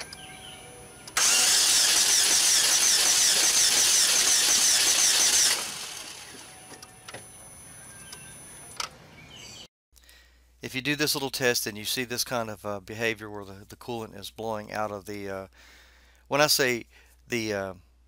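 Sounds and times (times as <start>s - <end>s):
car engine cranking on starter: 1.1s - 6.6s
coolant spraying out: 1.2s - 6.3s.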